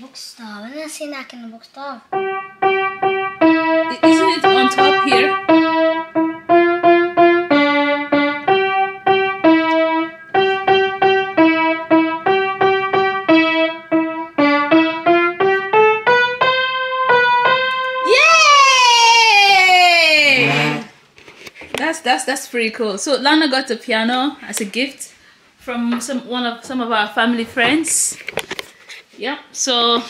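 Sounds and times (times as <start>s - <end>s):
piano notes played singly: 2.1s - 18.1s.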